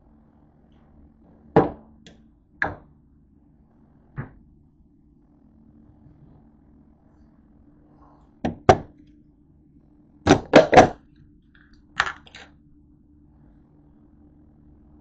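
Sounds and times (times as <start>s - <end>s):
faint steady hum: 0.0s - 15.0s
kitchen items knocking on countertop: 1.6s - 1.8s, 12.0s - 12.4s.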